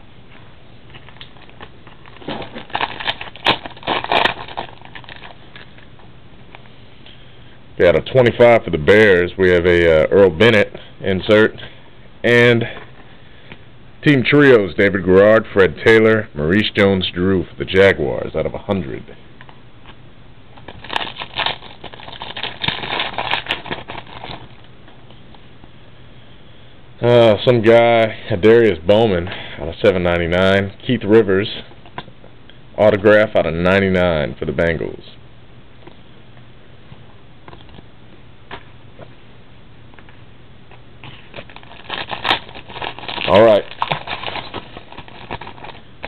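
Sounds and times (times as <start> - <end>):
trading cards rustling: 0.9 - 5.8, 20.6 - 24.6, 41.1 - 46.0.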